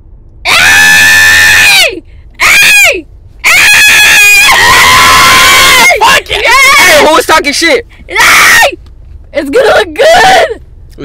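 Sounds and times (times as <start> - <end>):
loud high-pitched screams: 0.5 - 7.2, 8.1 - 8.8.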